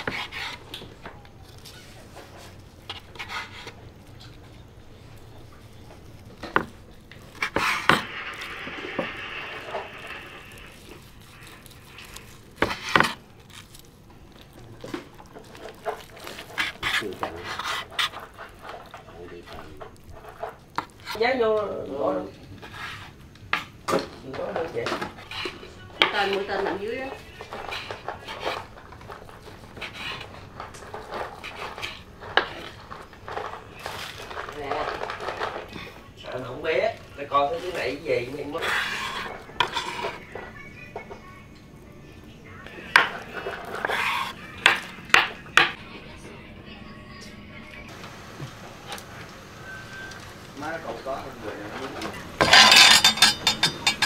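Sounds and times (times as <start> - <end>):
knife slicing meat: 38.5 - 40.2.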